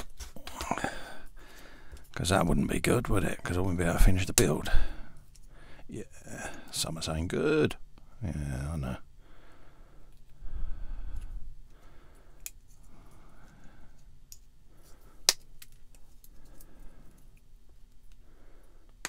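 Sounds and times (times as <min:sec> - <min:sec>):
soft handling noise: 0:11.1 - 0:18.2.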